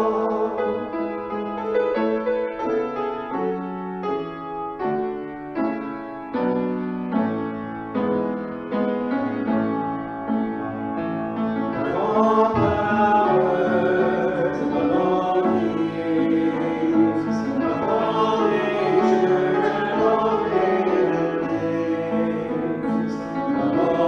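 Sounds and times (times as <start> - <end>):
singers performing worship song: 0.0 - 1.6, 11.7 - 24.0
grand piano: 0.0 - 24.0.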